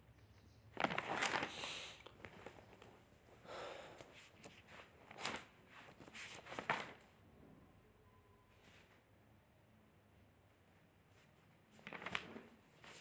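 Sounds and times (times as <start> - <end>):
rustling: 0.7 - 3.3.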